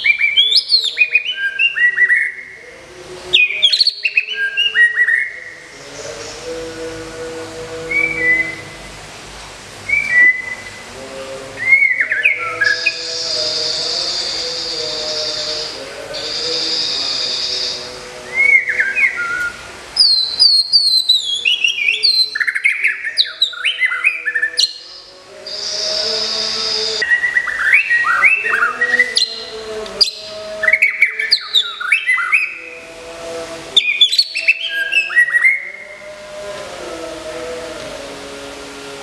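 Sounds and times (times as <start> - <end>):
bird singing whistled notes: 0.0 - 2.6, 3.4 - 5.6, 8.0 - 8.7, 9.9 - 10.8, 11.6 - 32.7, 33.8 - 35.9
high-pitched hiss: 0.0 - 39.0.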